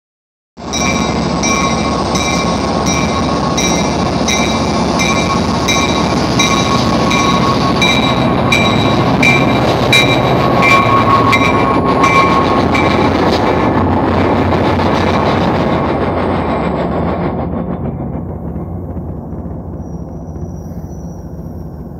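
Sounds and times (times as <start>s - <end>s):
locomotive warning bell ringing: 0.6s - 13.3s.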